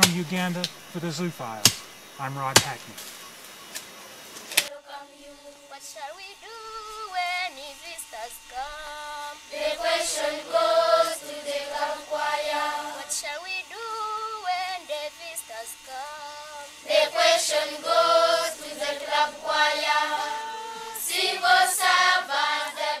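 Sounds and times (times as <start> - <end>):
children's choir singing: 4.7 - 23.0
single voice singing: 4.7 - 23.0.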